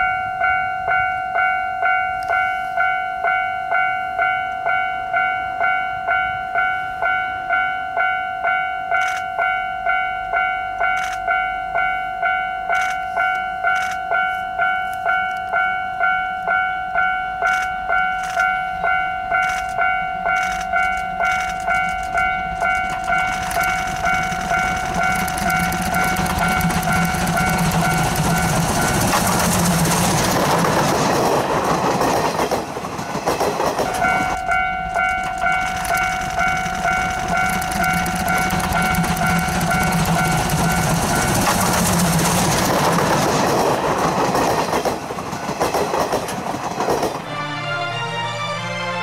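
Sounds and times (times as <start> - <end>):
steam locomotive exhaust chuffs: 18.8 - 47.2
steam whistle blast: 47.2 - 49.0.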